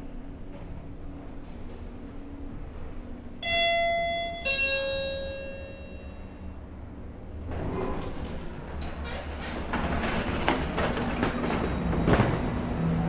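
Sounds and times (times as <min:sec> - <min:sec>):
lift car hum: 0:00.0 - 0:13.0
lift doors mechanical rumble: 0:00.0 - 0:13.0
two-tone lift chime: 0:03.4 - 0:06.4.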